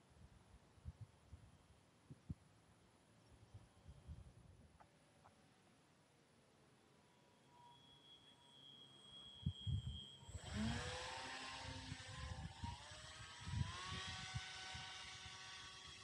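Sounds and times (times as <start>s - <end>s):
motor and propeller whining: 8.7s - 16.0s.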